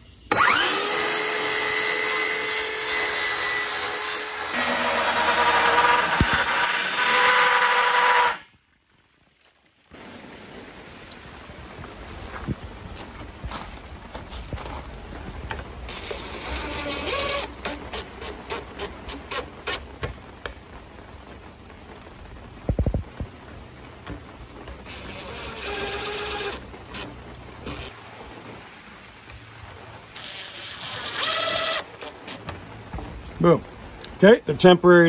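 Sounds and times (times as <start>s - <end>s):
impact driver driving screws: 4.6s - 8.4s.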